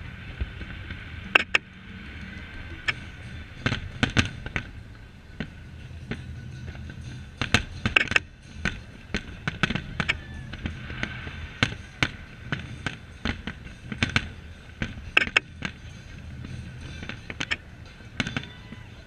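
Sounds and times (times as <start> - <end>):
steady low hum: 0.0 - 19.0
fireworks bangs: 8.6 - 15.9, 16.8 - 18.9.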